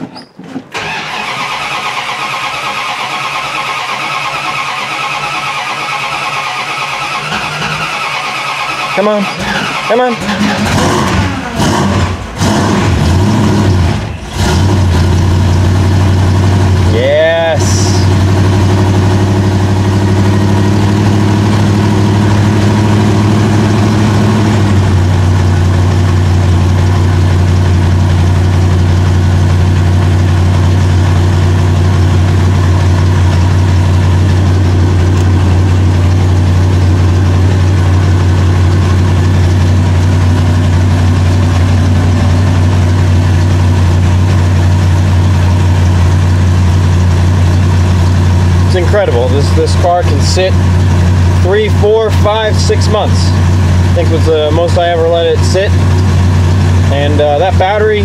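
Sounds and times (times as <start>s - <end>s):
car engine idling: 0.7s - 58.0s.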